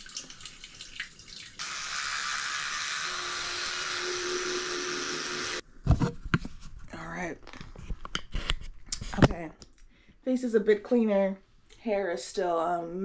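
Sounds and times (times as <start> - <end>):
sink faucet running: 0.0 - 5.6.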